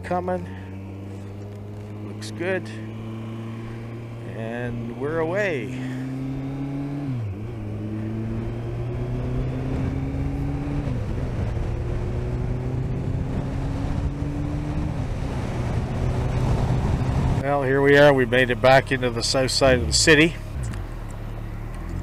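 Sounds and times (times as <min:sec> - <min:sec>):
motorcycle engine accelerating: 0:00.0 - 0:22.0
wind noise: 0:07.1 - 0:17.4.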